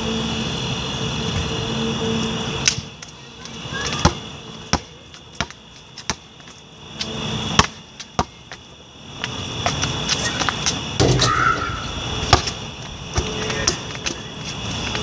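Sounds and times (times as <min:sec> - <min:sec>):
basketball bouncing: 0:03.8 - 0:15.0.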